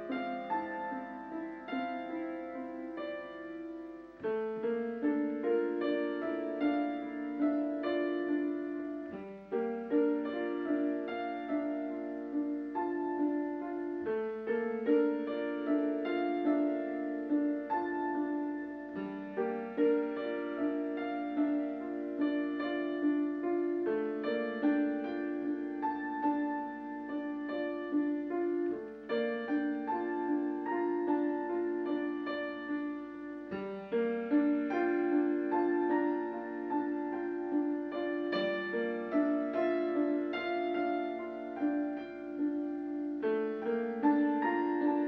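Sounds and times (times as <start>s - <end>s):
piano music: 0.0s - 45.0s.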